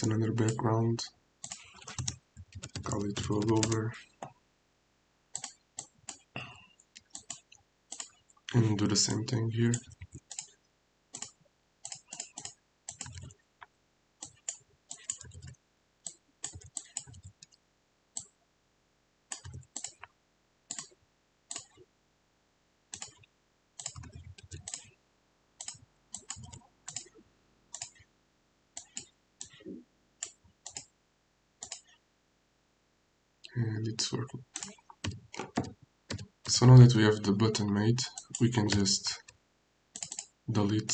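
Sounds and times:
keyboard typing: 0:00.0 - 0:00.7, 0:01.4 - 0:04.3, 0:05.4 - 0:08.2, 0:09.7 - 0:13.4, 0:14.2 - 0:17.6, 0:19.3 - 0:20.1, 0:20.7 - 0:21.8, 0:23.0 - 0:24.9, 0:25.6 - 0:28.0, 0:28.8 - 0:30.9, 0:31.6 - 0:32.0, 0:34.0 - 0:39.4, 0:40.0 - 0:40.9
mouse clicks: 0:11.2 - 0:13.3, 0:30.2 - 0:30.9, 0:31.6 - 0:32.0.

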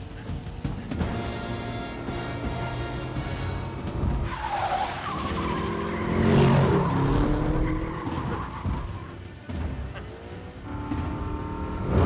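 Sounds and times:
car engine revving: 0:00.0 - 0:12.0
tyres skidding and squealing: 0:00.0 - 0:12.0.

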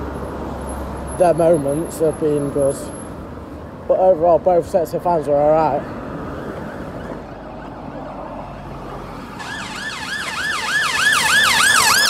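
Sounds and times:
ambulance siren yelping: 0:09.3 - 0:12.0.

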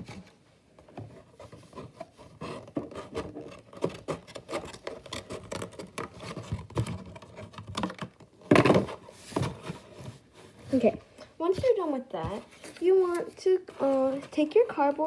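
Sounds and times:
cardboard crackling: 0:01.1 - 0:15.0.

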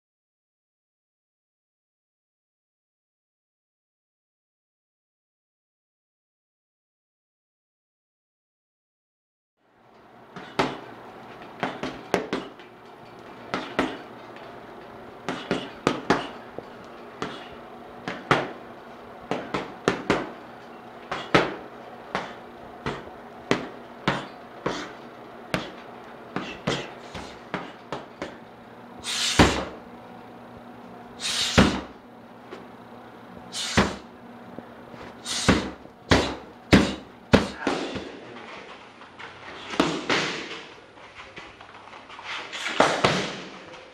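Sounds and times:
punches and kicks striking pads: 0:21.1 - 0:24.9, 0:29.3 - 0:29.8, 0:31.5 - 0:32.0, 0:33.7 - 0:34.0, 0:35.3 - 0:38.2, 0:42.8 - 0:43.5.

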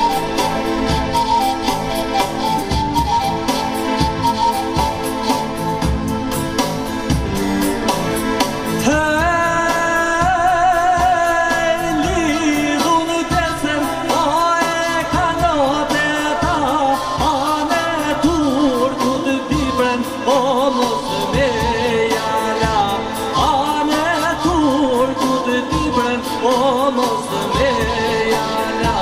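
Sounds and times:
amplified backing music: 0:00.0 - 0:29.0
person singing into a microphone: 0:08.7 - 0:29.0.

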